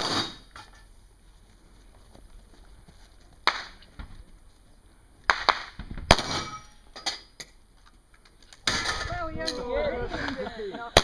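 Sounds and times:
pistol shots: 0:05.3 - 0:06.6.

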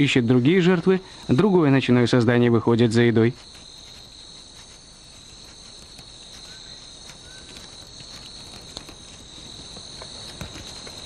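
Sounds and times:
insects trilling: 0:00.0 - 0:11.0
faint clicks or rustles: 0:03.4 - 0:11.0.

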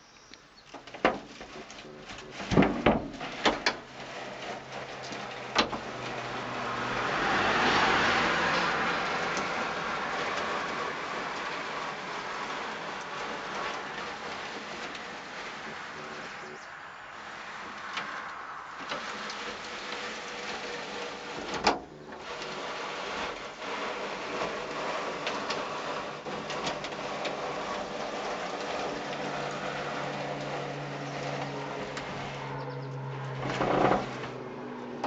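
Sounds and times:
sunroof rattling and scraping: 0:00.6 - 0:35.0.

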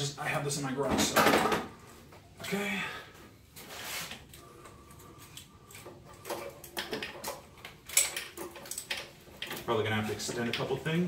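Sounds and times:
small parts clicking by hand: 0:04.3 - 0:09.7.

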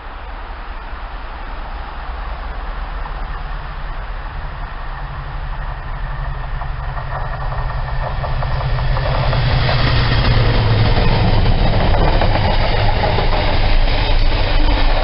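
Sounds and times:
diesel locomotive engine: 0:00.0 - 0:15.0
wagon wheels clattering on rails: 0:05.0 - 0:15.0.

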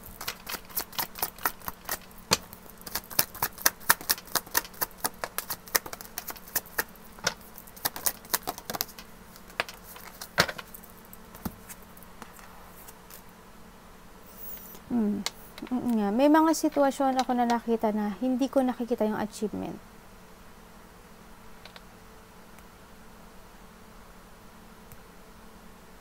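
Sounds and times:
cards being shuffled: 0:00.0 - 0:13.3.

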